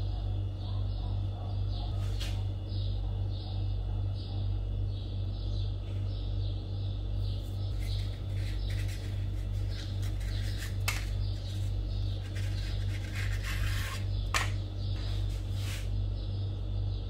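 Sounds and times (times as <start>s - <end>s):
steady low hum: 0.0s - 17.0s
paper rustling and rubbing: 7.7s - 15.9s.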